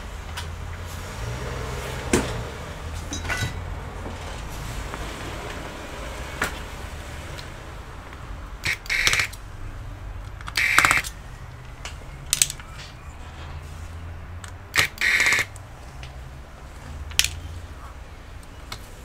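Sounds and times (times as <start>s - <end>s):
sharp clicks: 8.1s - 9.4s, 10.2s - 12.9s, 14.4s - 16.2s
electric screwdriver whirring: 8.6s - 9.4s, 10.5s - 11.2s, 14.7s - 15.5s.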